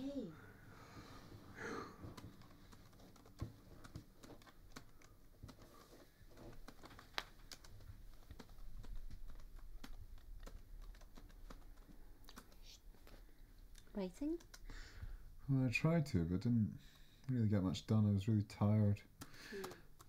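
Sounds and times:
laptop keyboard typing: 1.6s - 13.2s, 14.2s - 14.8s, 19.2s - 20.0s.

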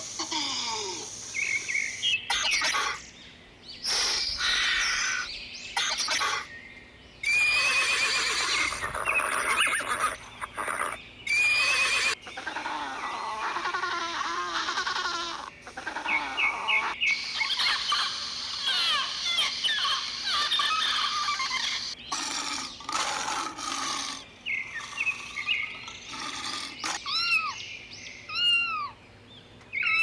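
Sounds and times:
bird-like animal calls: 3.8s - 6.5s, 7.2s - 27.6s, 28.3s - 29.0s, 29.7s - 30.0s.

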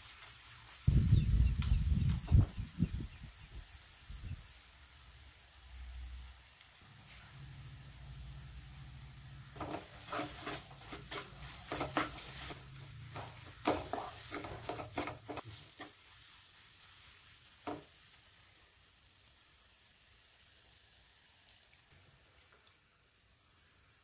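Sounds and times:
wooden spatula scraping a pan: 9.5s - 17.9s.

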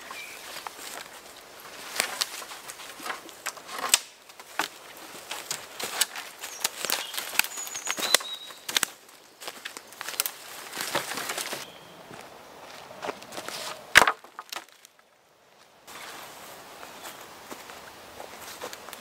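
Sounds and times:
branches dragged: 0.0s - 15.1s, 15.9s - 19.0s
footsteps crunching dry leaves: 0.0s - 15.1s, 15.9s - 19.0s
twigs snapping: 1.7s - 11.6s, 13.0s - 15.1s.

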